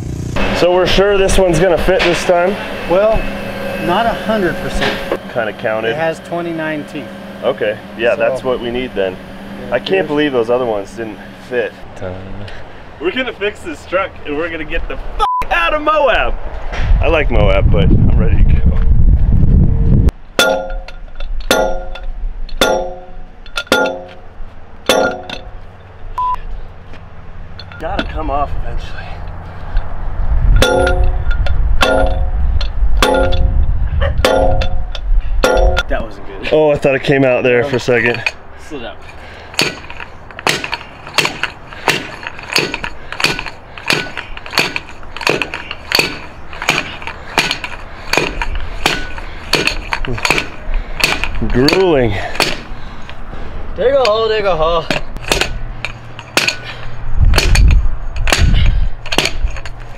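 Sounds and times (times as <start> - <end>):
pipe striking metal axle: 0.4 - 11.8, 20.2 - 26.2, 27.5 - 28.4, 30.5 - 36.2, 37.7 - 52.7, 54.0 - 59.9
sledgehammer clanging on steel: 0.5 - 6.8, 20.4 - 26.2, 27.5 - 28.4, 30.6 - 33.6, 34.2 - 36.1, 37.6 - 52.7, 53.9 - 59.9.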